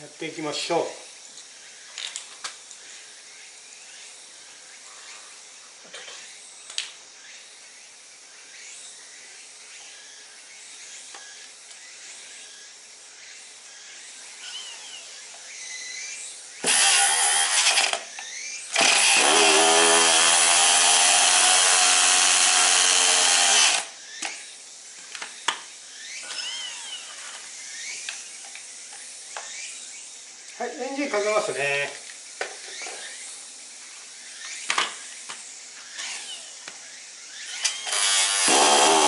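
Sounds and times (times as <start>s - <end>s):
electric starter spinning engine: 16.6s - 18.0s, 18.7s - 24.0s, 37.3s - 39.0s.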